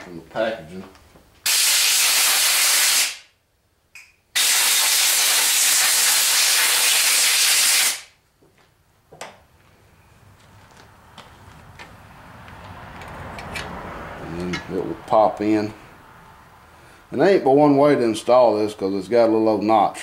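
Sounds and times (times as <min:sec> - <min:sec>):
compressed-air blow gun hissing: 0:01.5 - 0:03.2, 0:04.4 - 0:08.1.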